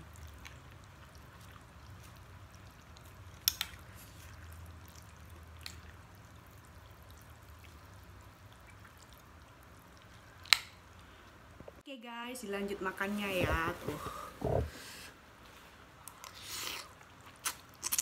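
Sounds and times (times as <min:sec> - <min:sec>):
noodles being slurped and chewed: 0:00.0 - 0:10.6, 0:15.4 - 0:18.0.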